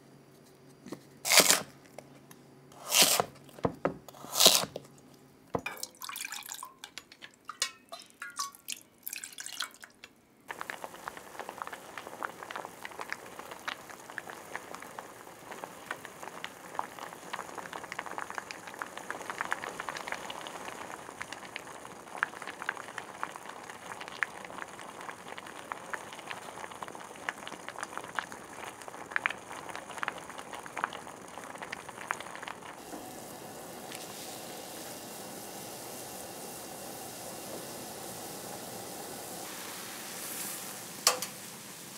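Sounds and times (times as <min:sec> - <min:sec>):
knife cutting on wooden board: 0:02.8 - 0:03.3, 0:04.1 - 0:04.8
pot of broth simmering: 0:10.5 - 0:41.9.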